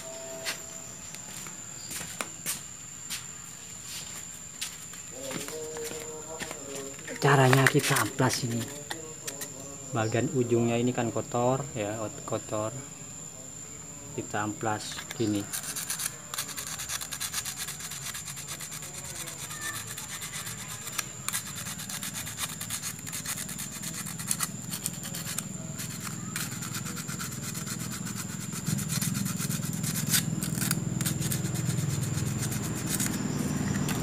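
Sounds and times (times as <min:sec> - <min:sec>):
sandpaper rubbing on metal: 0:07.2 - 0:09.4, 0:15.2 - 0:34.0.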